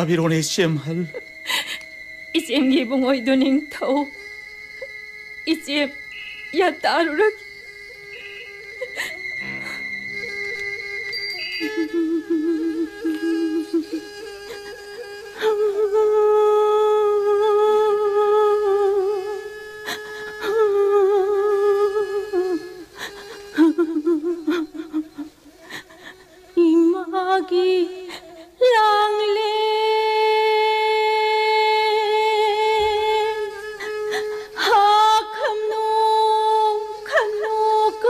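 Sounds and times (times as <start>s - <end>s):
person singing slow melody: 5.8s - 19.6s, 20.4s - 25.9s.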